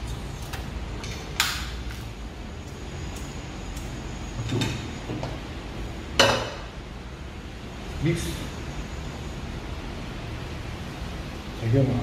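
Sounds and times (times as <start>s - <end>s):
wok clanking on metal grate: 6.2s - 6.7s.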